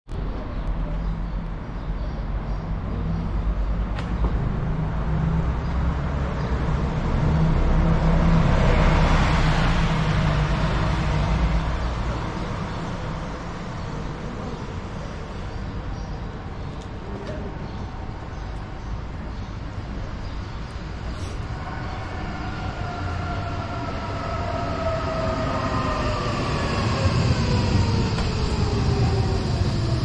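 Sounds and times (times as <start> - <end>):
vehicle passing by: 4.4 - 13.5.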